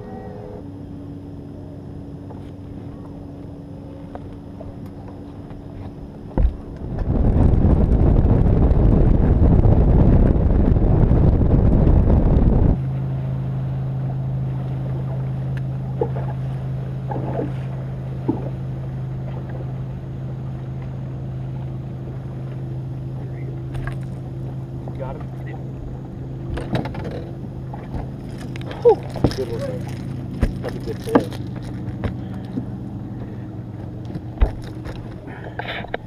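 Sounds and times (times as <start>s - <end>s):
boat motor hum: 0.0s - 36.0s.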